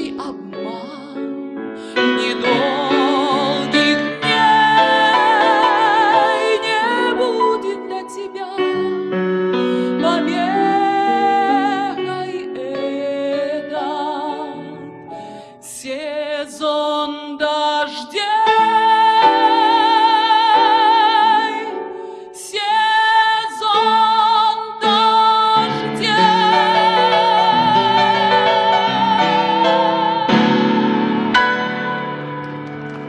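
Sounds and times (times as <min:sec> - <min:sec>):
woman singing with vibrato: 0:00.0 - 0:32.1
instrumental accompaniment: 0:25.6 - 0:33.0.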